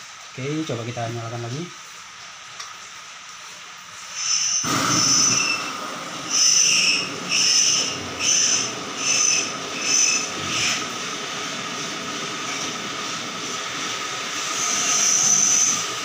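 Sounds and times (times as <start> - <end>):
gas torch hissing: 3.4 - 16.0.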